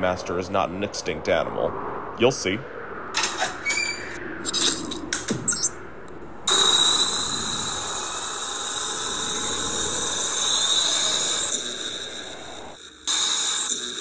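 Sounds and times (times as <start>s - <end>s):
thin rising sweeps: 1.9s - 14.0s
loud hiss with high whine: 6.5s - 14.0s.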